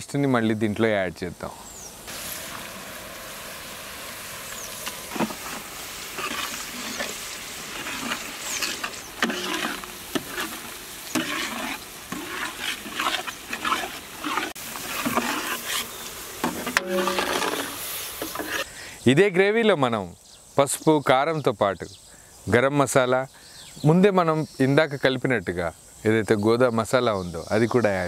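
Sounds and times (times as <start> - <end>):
gravy sizzling in a pot: 2.0 - 18.7
metal ladle scraping and knocking pot: 4.8 - 18.7.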